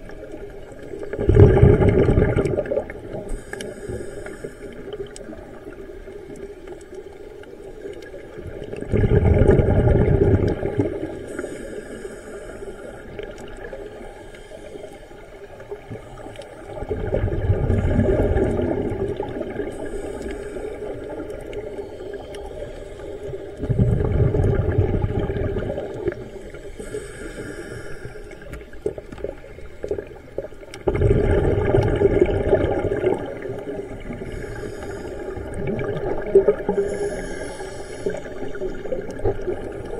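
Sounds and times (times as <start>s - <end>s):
bubbling exhaled air: 0.0s - 6.2s, 8.1s - 14.0s, 15.5s - 39.9s
inhalation hisses through regulator: 3.1s - 5.4s, 11.0s - 16.8s, 19.5s - 23.8s, 25.6s - 28.9s, 33.3s - 39.9s.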